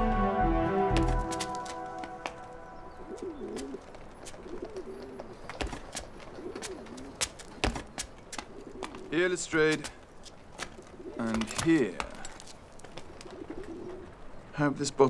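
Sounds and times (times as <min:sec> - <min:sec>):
footsteps on a rooftop: 0:00.9 - 0:14.3
pigeons cooing: 0:02.2 - 0:09.1, 0:10.7 - 0:14.4.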